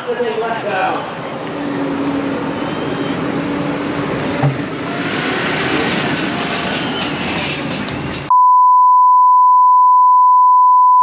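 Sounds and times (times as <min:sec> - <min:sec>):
pulling tractor engine: 0:00.7 - 0:08.3
steady bleep tone: 0:08.3 - 0:11.0.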